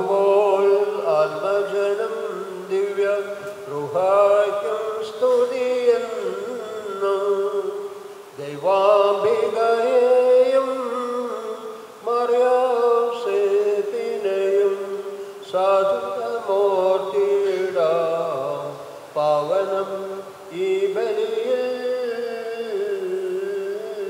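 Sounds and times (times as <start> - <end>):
steady held drone tone: 0.0 - 24.0
voice chanting: 0.0 - 24.0.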